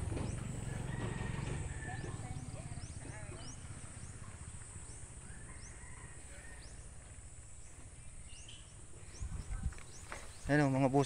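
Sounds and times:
low bumps: 0:00.0 - 0:05.2
bird chirps: 0:01.8 - 0:11.0.

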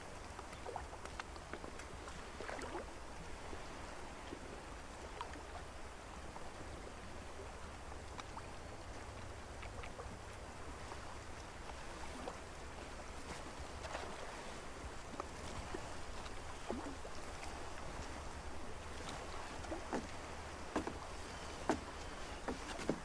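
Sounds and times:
hiss of calm water: 0:01.6 - 0:23.0
creaks and knocks: 0:20.7 - 0:23.0.

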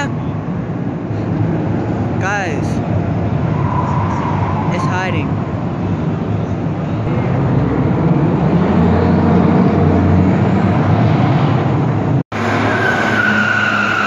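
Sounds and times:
tyre squeal: 0:03.5 - 0:04.8, 0:12.4 - 0:14.0
car engine revving high: 0:07.1 - 0:14.0.

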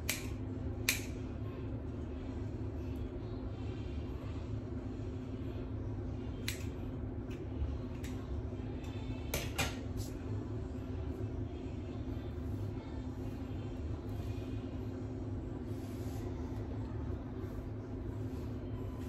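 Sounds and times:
scissors clicking: 0:00.0 - 0:01.1, 0:06.4 - 0:06.7
steady low hum: 0:00.0 - 0:19.0.

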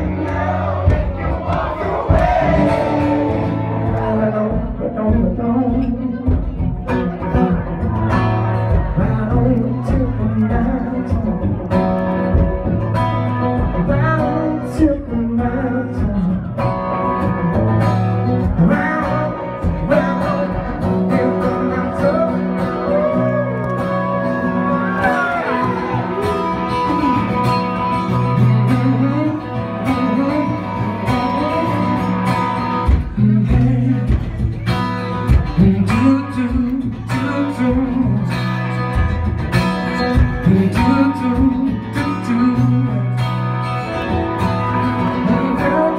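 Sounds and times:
person singing: 0:00.0 - 0:11.9, 0:13.5 - 0:38.8, 0:40.2 - 0:43.4, 0:44.7 - 0:45.9
live blues-rock band: 0:00.0 - 0:45.9.

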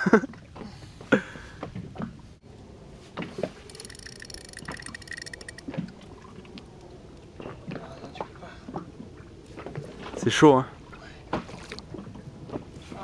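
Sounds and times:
faint reel whine: 0:03.5 - 0:06.3
fishing reel ticking: 0:03.6 - 0:05.9.

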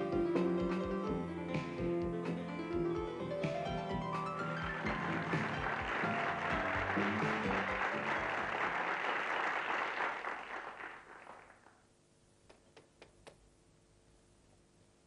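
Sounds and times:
background music: 0:00.0 - 0:09.1
audience applause: 0:04.4 - 0:11.8.

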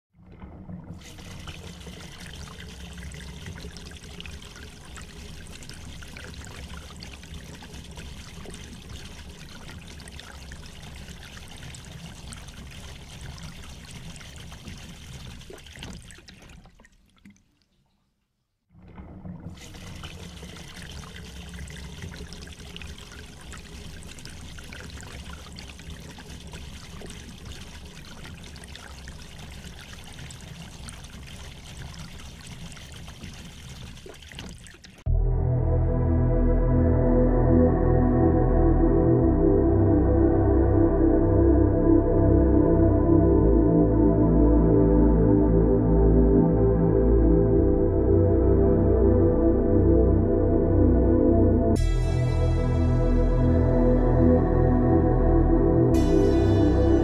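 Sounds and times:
trickling rushing water: 0:00.2 - 0:18.0, 0:18.9 - 0:35.1.

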